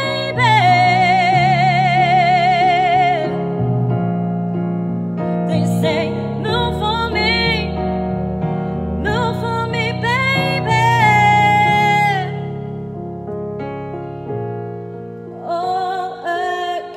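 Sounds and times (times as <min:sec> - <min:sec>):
woman singing with vibrato: 0:00.0 - 0:03.4, 0:05.5 - 0:07.8, 0:09.0 - 0:12.7, 0:15.3 - 0:16.9
piano-like keyboard backing: 0:00.0 - 0:16.9.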